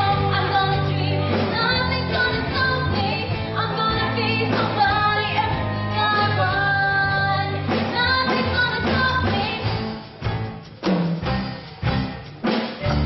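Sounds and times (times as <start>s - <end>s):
woman singing: 0.0s - 10.0s
pop backing band with bass: 0.0s - 13.0s.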